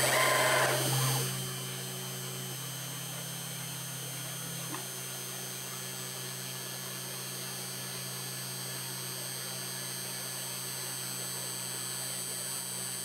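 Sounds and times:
high spindle whine: 0.0s - 4.8s
cnc router motor hum: 0.0s - 13.0s.

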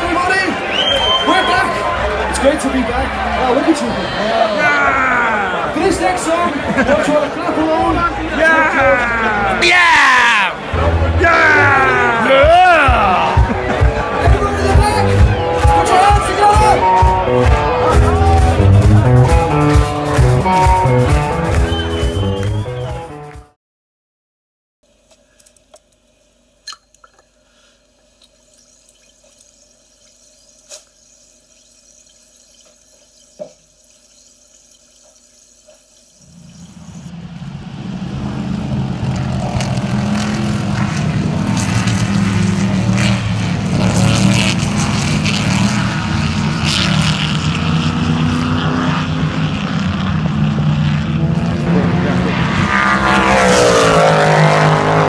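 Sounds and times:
small clicks: 25.1s - 26.0s
racing car engines passing: 36.3s - 55.0s.

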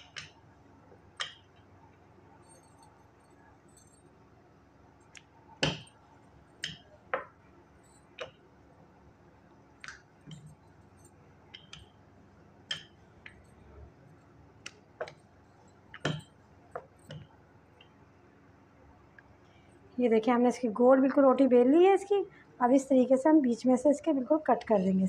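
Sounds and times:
metal bangles clinking: 2.3s - 4.4s, 5.0s - 8.4s, 9.8s - 12.0s, 12.6s - 17.4s.

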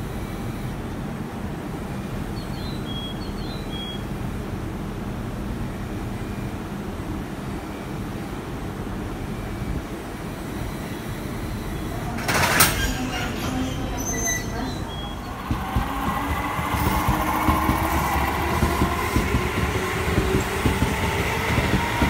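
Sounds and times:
train low hum: 3.4s - 22.0s
train rolling rumble: 11.7s - 22.0s
high chirps: 13.6s - 19.4s.

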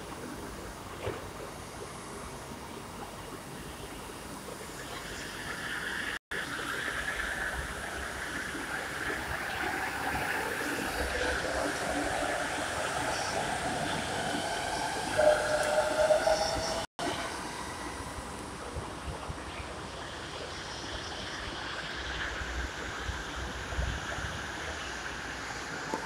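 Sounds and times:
train approaching on elevated track: 0.0s - 26.0s
train rushing past whining: 5.4s - 26.0s.

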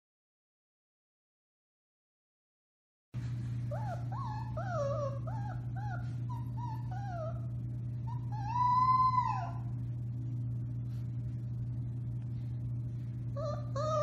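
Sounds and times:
steady low hum: 3.2s - 14.0s
puppy howling and yipping: 3.7s - 9.8s, 13.4s - 14.0s.

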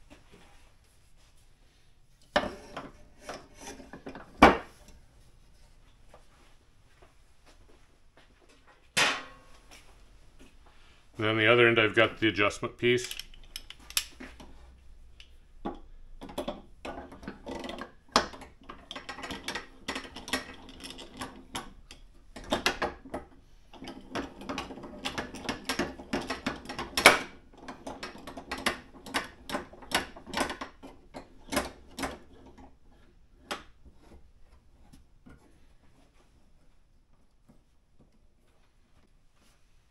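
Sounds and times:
metal clamp fittings clicking and rattling: 13.0s - 14.2s.

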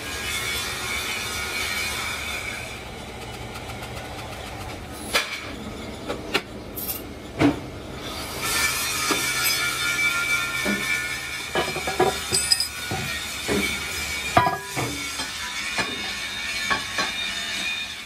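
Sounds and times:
metal-on-metal squeal: 8.4s - 18.0s
sharp metal clanks: 11.7s - 13.1s.

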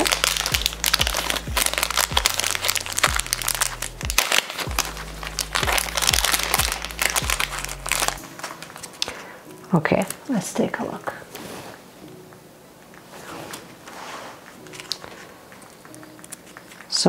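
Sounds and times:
background music with bass and beat: 0.0s - 8.2s
packaging crinkling: 0.0s - 9.4s, 14.4s - 17.0s.

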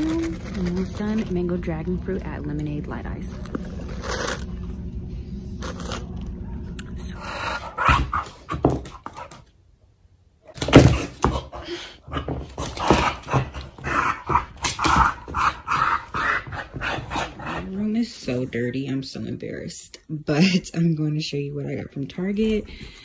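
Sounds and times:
indoor store hum: 0.0s - 23.0s.

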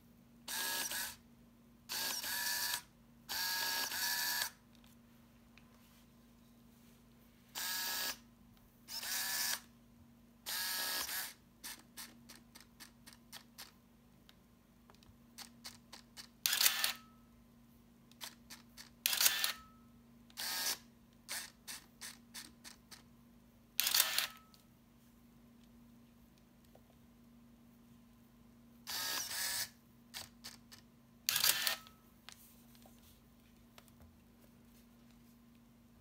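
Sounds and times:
camera motor whirring: 0.5s - 1.2s, 1.9s - 4.6s, 7.6s - 8.2s, 8.9s - 9.7s, 10.5s - 13.7s, 15.4s - 17.0s, 18.2s - 19.6s, 20.4s - 23.0s, 23.8s - 24.4s, 28.9s - 32.0s.

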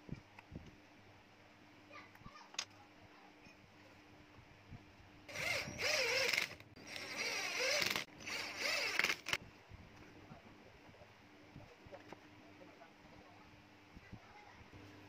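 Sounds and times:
cordless drill whirring: 5.3s - 9.4s.

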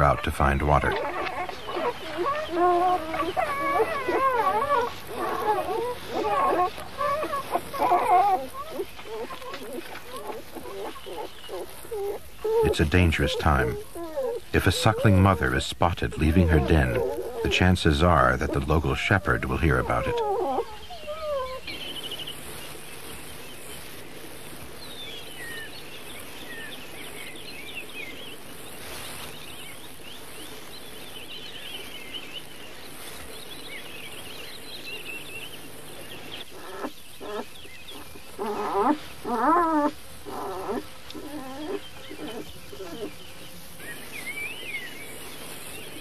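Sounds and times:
wolf cubs squealing and whimpering: 0.0s - 22.6s, 35.9s - 45.0s
small birds chirping: 0.0s - 46.0s.

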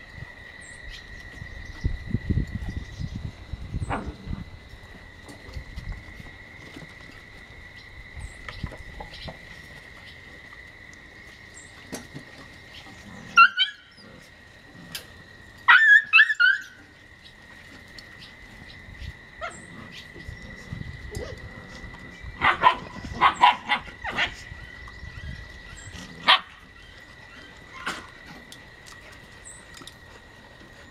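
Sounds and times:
puppies yipping and barking: 12.8s - 14.3s, 15.6s - 17.0s, 21.0s - 28.6s.

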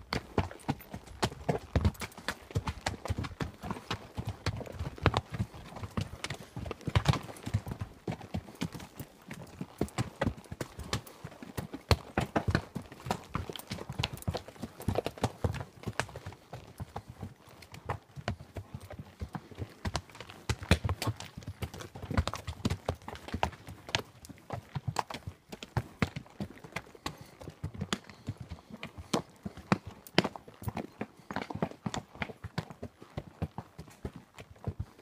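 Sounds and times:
horse hooves clopping on rocky trail: 0.0s - 35.0s.

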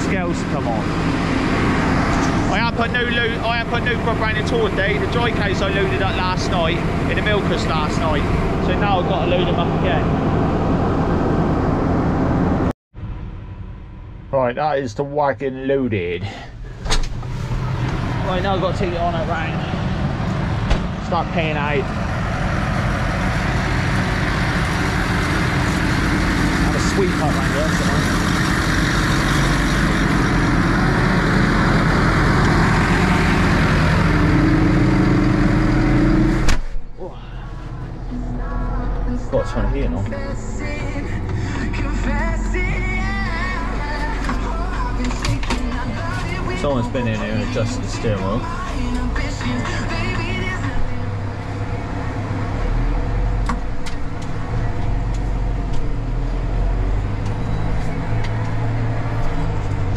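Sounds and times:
diesel tractor engine idling: 0.0s - 14.5s, 16.0s - 59.9s
cab door shutting: 16.7s - 17.4s.

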